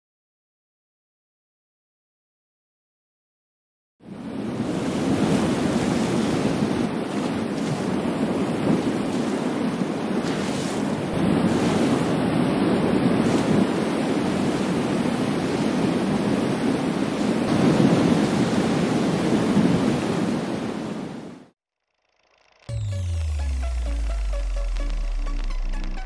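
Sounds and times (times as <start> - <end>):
wind on microphone: 4.1 - 21.4
surf washing against rocks: 4.4 - 21.2.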